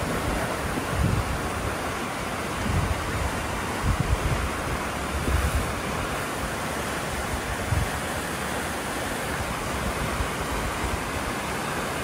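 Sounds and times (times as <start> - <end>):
wind buffeting microphone: 0.0 - 8.3
floodwater rushing: 0.0 - 12.0
runoff pouring down bank: 0.0 - 12.0.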